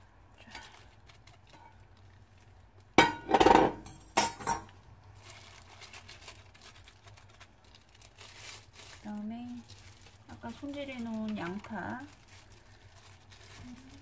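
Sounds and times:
metal bowl clanking: 3.0 - 4.7.

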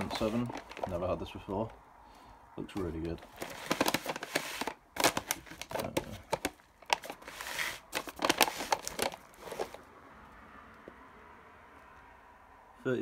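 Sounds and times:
plastic wrapping crinkling: 0.0 - 1.7, 2.7 - 9.8.

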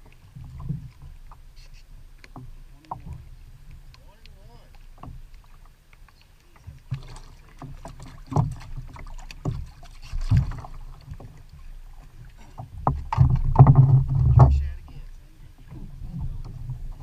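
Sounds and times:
knocks on plastic kayaks: 12.8 - 14.8.

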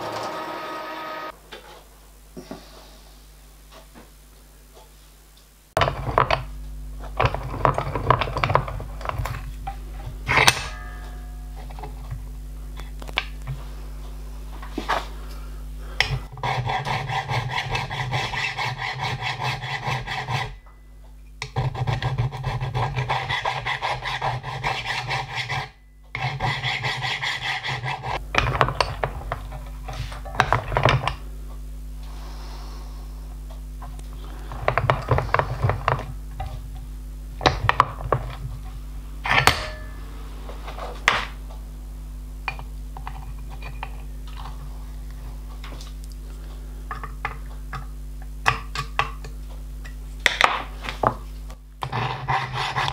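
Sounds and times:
file rasping on steel: 16.3 - 20.6, 21.4 - 28.2, 51.8 - 52.9.

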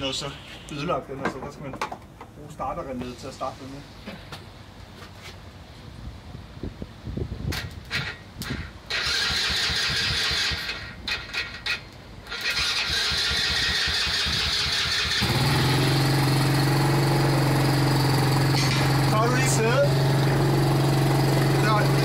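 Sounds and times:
starter motor cranking: 8.9 - 11.5, 12.3 - 22.0
engine idling: 13.6 - 22.0.

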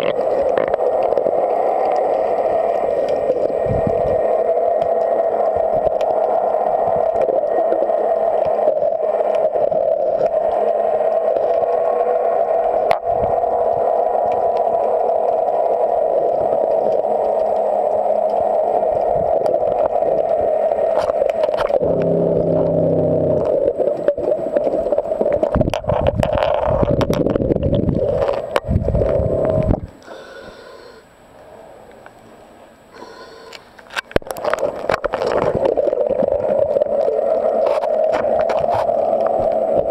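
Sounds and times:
loud underwater hum: 0.0 - 25.5, 27.9 - 31.0.

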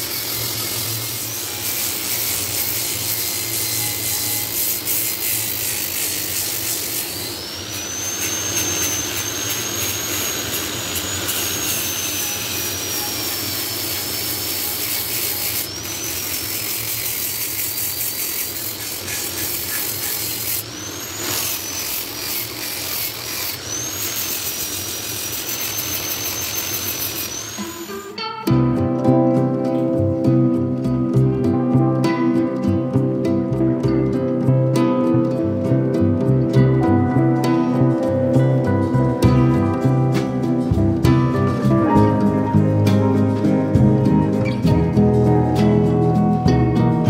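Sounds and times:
angle grinder sanding wood: 0.0 - 28.2.

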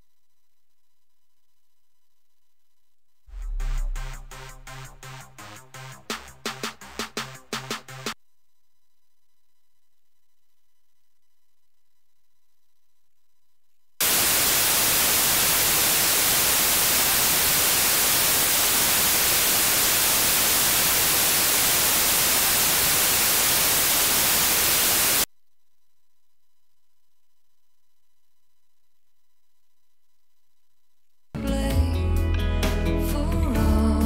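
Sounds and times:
white noise hiss: 14.0 - 25.3.

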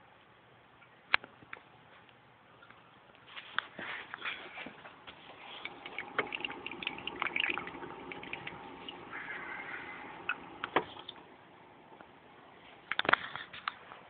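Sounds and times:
aquarium water trickling and bubbling: 5.3 - 11.5.

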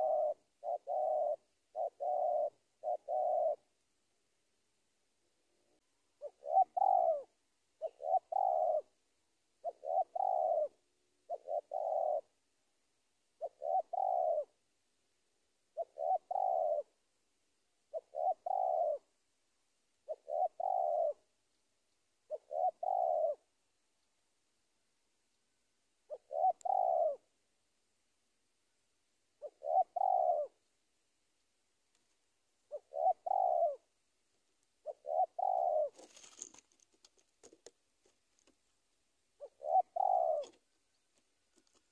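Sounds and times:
dove cooing: 0.0 - 3.7, 5.5 - 9.0, 9.6 - 12.4, 13.4 - 14.6, 15.7 - 17.0, 17.9 - 19.1, 20.0 - 21.3, 22.2 - 23.5, 26.0 - 27.4, 29.4 - 30.7, 32.6 - 34.0, 34.8 - 37.7, 39.4 - 41.0.

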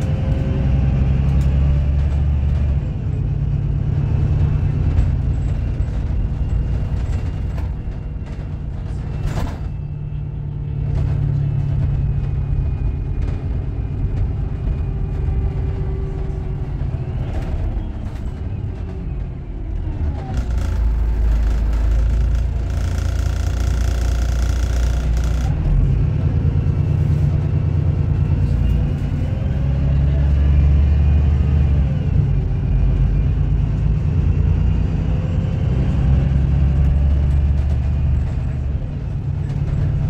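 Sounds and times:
bus engine rumble: 0.0 - 40.0
rattles and knocks: 4.0 - 10.0, 10.8 - 25.6.

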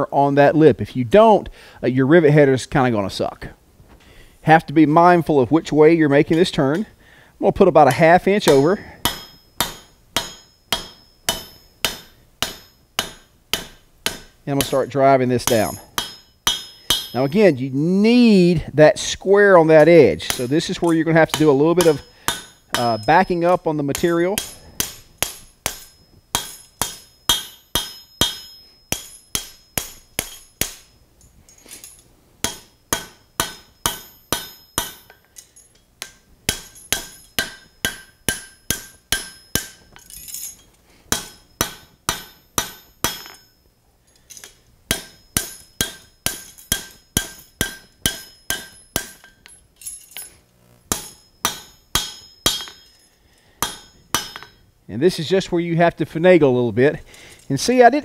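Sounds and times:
hammer ringing on anvil: 8.4 - 17.4, 19.9 - 31.0, 32.4 - 35.4, 36.0 - 43.7, 44.9 - 49.6, 50.2 - 54.6.

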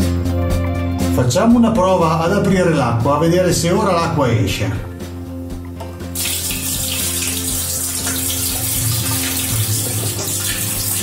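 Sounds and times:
water gushing into cistern: 6.2 - 11.0.

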